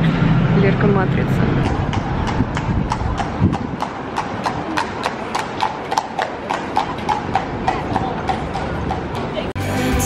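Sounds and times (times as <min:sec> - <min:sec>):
clip-clop on hard surface: 0:01.6 - 0:09.6.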